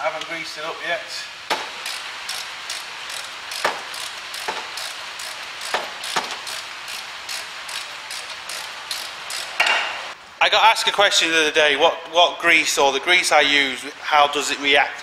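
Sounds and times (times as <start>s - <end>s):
socket ratchet clicking: 1.8s - 9.6s.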